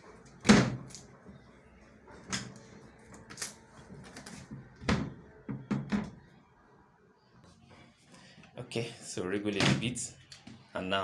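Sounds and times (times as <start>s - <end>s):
knocks and clunks of washing machine panel: 4.8s - 6.2s.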